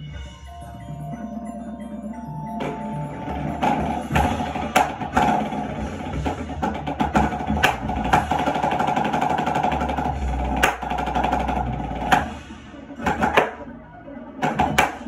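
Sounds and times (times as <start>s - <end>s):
sustained musical tone: 0.0s - 7.0s.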